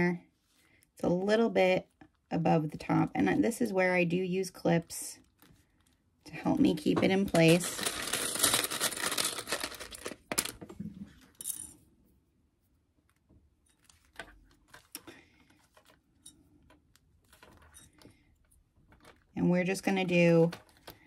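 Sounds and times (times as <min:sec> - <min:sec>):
rustling handling noise: 0:05.2 - 0:11.6, 0:12.6 - 0:21.0.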